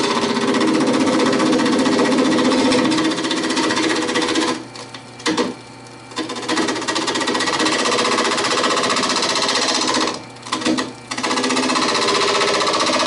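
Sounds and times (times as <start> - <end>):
lathe motor hum: 0.0 - 13.0
lathe tool chattering: 6.2 - 13.0.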